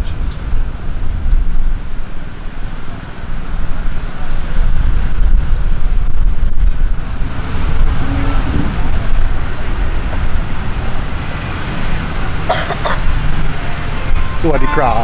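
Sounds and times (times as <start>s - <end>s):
wind buffeting microphone: 0.0s - 12.4s
traffic noise: 0.0s - 15.0s
brief high-pitched sound: 14.4s - 15.0s.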